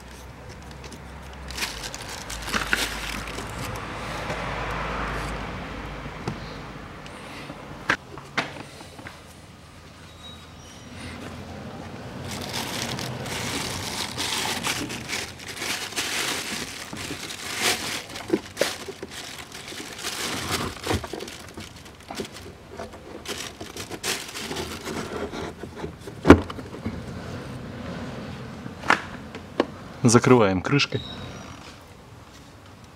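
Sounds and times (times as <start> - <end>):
plastic filter rustling and scraping: 0.0 - 3.8, 12.2 - 26.7.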